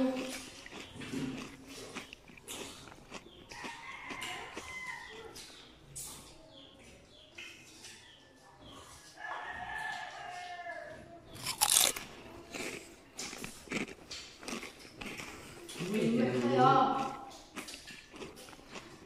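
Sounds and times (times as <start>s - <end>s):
people crunching mango slices: 0.0s - 6.4s, 11.3s - 19.0s.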